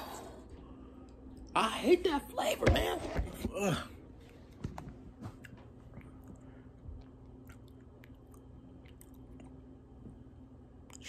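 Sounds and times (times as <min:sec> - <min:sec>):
faint chewing of wafer: 0:05.2 - 0:09.8.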